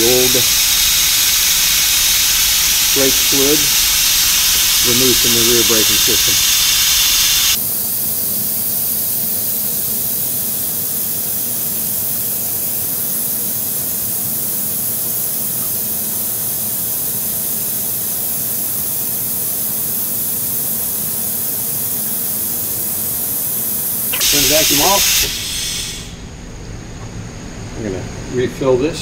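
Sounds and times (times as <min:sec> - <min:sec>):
brake bleeder hissing: 0:00.0 - 0:07.6, 0:13.0 - 0:28.2.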